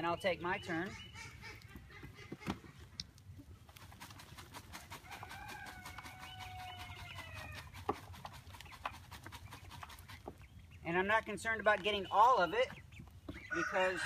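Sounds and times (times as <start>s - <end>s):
chicken calling: 0.4s - 2.9s, 4.7s - 7.8s, 11.9s - 14.0s
compost rattling in sifter: 3.7s - 10.2s.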